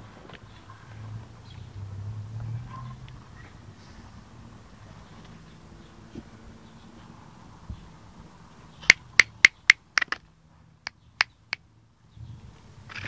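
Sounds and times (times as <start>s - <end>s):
sharp clicks: 8.8s - 10.2s.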